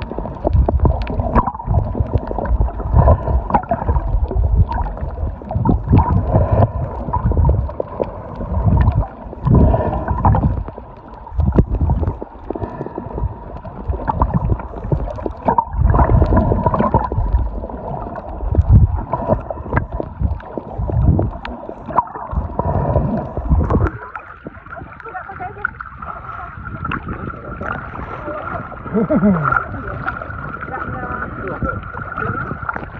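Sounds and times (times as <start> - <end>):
water churning underwater: 0.0 - 32.9.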